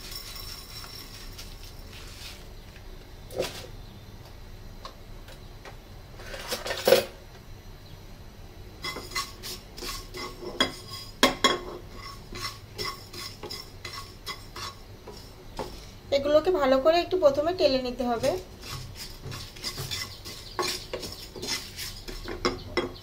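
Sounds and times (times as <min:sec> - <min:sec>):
wooden spatula scraping a pan: 0:08.8 - 0:16.0, 0:18.1 - 0:22.6
spatula knocking against pan: 0:18.2 - 0:23.0.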